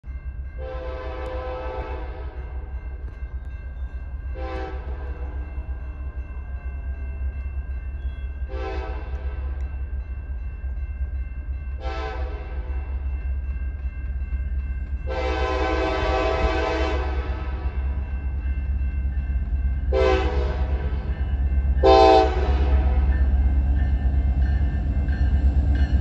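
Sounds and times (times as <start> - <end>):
locomotive air horn blasts: 0.6 - 2.4, 4.4 - 5.3, 8.5 - 9.4, 11.8 - 12.5, 15.1 - 17.9, 19.9 - 21.0, 21.8 - 23.1.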